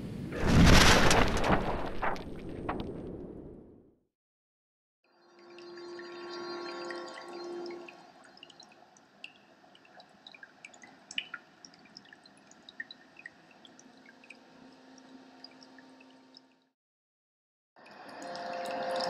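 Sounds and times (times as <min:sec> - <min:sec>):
low steady tone: 0:05.3 - 0:10.2, 0:12.8 - 0:16.7.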